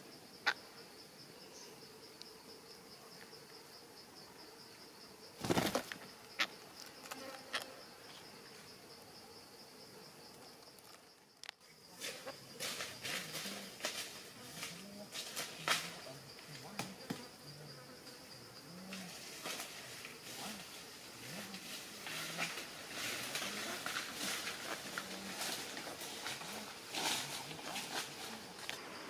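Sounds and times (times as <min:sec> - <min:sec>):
fast-pulsing insect drone: 0:00.0 - 0:10.0
parakeet wingbeats: 0:05.4 - 0:06.0.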